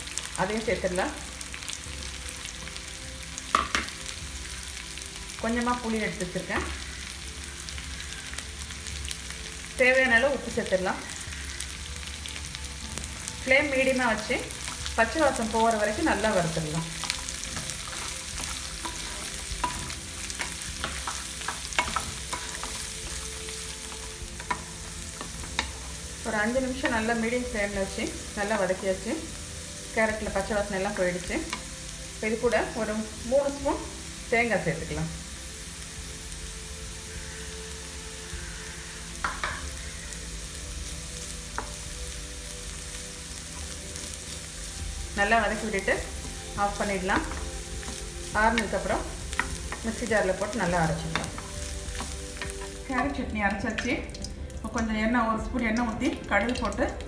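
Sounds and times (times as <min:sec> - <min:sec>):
oil sizzling: 0:00.0 - 0:57.0
wooden spatula stirring: 0:16.2 - 0:26.0.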